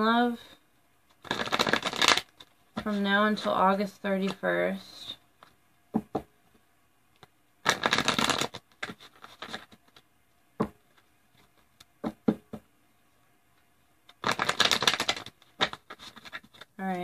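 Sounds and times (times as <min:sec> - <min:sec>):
cards being shuffled: 0:01.1 - 0:03.6, 0:07.2 - 0:10.1, 0:14.0 - 0:17.0
cards tapping and clicking: 0:07.2 - 0:10.0, 0:14.1 - 0:17.0.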